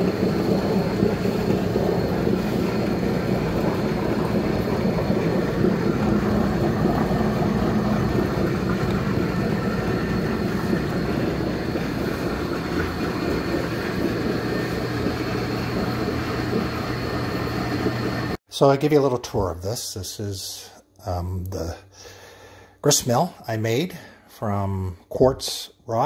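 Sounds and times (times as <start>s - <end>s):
stone grist mill running: 0.0s - 18.4s.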